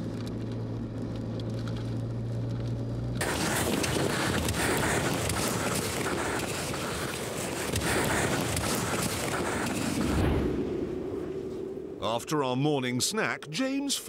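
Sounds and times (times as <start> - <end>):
car engine drone inside cabin: 0.0 - 8.1.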